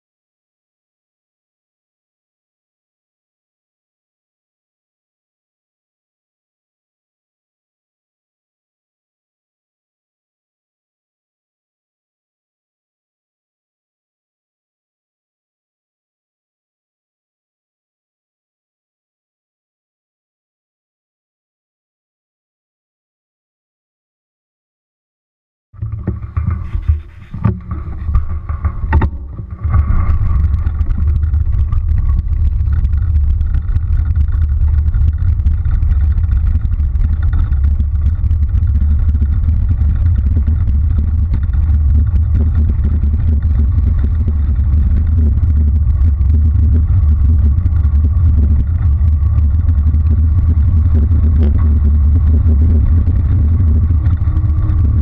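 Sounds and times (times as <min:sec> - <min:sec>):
bike knocks and rattles: 0:25.8 - 0:46.4
tyre noise on road: 0:25.8 - 0:55.0
wind buffeting microphone: 0:25.8 - 0:55.0.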